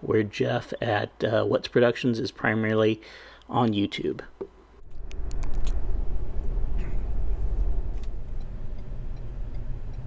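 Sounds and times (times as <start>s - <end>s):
vehicle engine and tyre rumble: 4.8s - 10.0s.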